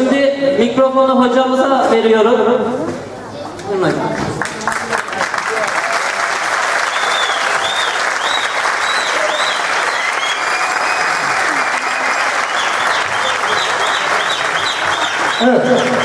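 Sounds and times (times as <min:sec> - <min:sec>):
audience applauding: 0:04.1 - 0:16.0.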